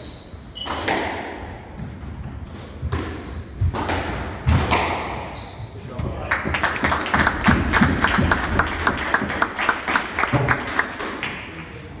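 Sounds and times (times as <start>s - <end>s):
spectators clapping: 6.2s - 11.7s.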